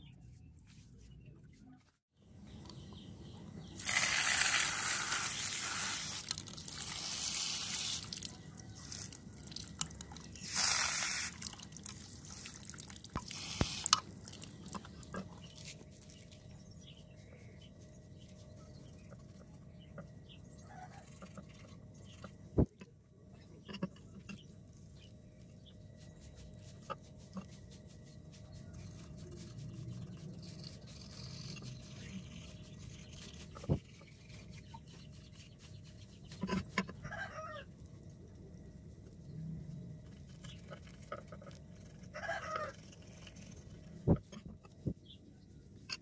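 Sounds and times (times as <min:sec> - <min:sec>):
water spray hissing on rock: 0:03.8 - 0:08.3, 0:10.4 - 0:11.5.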